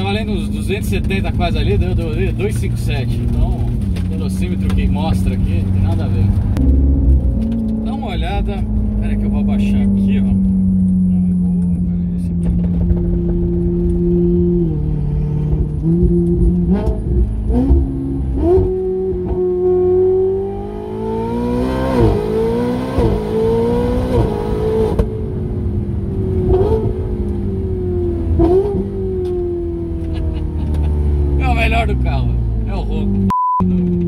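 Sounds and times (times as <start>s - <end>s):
car engine accelerating and shifting: 0.0s - 34.0s.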